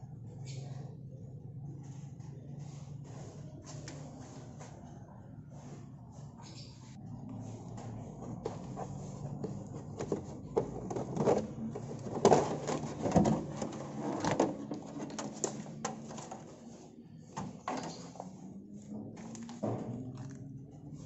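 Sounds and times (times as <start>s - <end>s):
plastic cover clicks and rattles: 9.5s - 16.4s.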